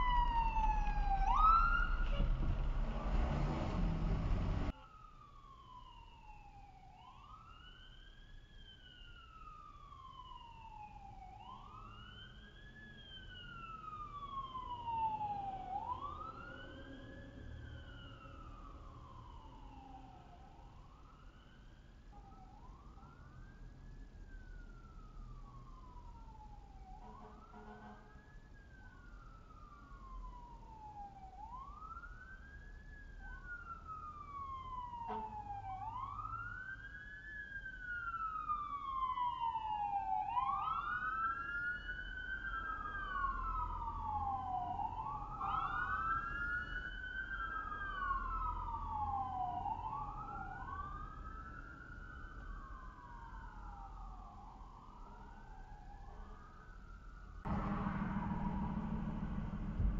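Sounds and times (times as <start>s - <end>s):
emergency vehicle siren wailing: 0.0s - 59.9s
second siren: 0.0s - 59.9s.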